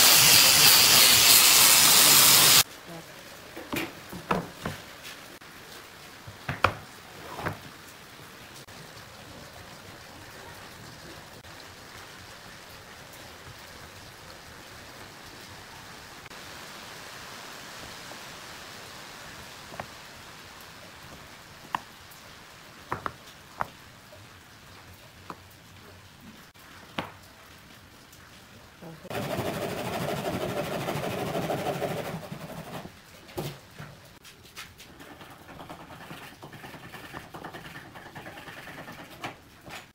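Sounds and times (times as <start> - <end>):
wooden blocks knocking: 6.4 - 7.6, 22.9 - 23.7.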